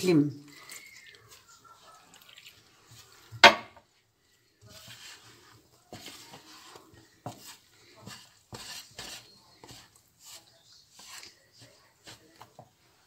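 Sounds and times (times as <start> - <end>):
water splashing into flour: 0.0 - 3.6
wooden spoon stirring wet flour: 0.0 - 13.0
knock: 3.4 - 3.8.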